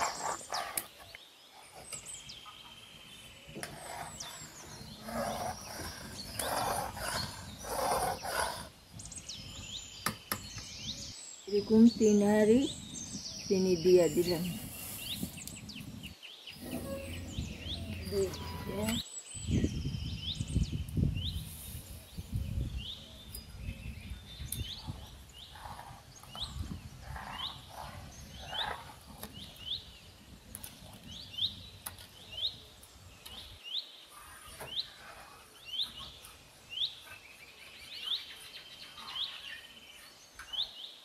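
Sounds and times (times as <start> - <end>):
bird chirping: 0.0 - 41.0
low rumble: 15.5 - 19.0.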